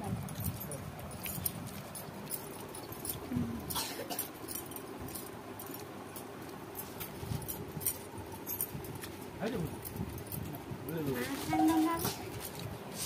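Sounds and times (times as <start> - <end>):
steel dishes and bangles clinking: 0.0 - 12.7.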